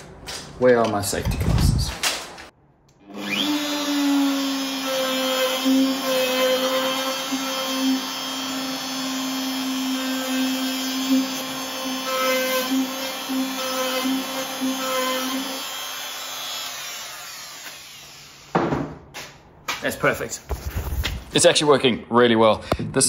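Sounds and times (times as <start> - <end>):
router whining: 3.0 - 18.6.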